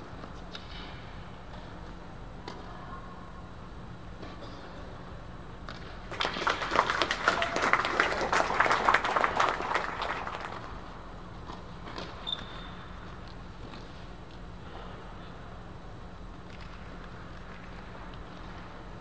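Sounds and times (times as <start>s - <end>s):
low steady hum: 0.0s - 19.0s
spectators clapping: 6.0s - 11.0s.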